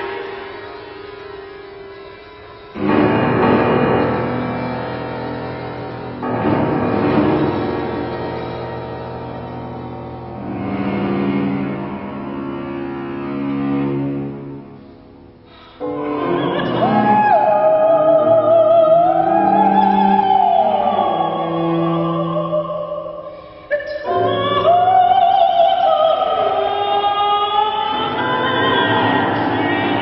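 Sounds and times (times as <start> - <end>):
cello: 0.0 - 30.0
piano: 0.0 - 30.0
soprano singing with vibrato: 15.8 - 30.0.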